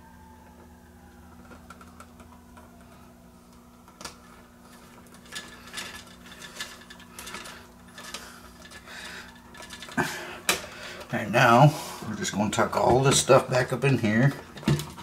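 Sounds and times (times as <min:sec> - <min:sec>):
stiff wire rustling and scraping: 0:04.2 - 0:10.0.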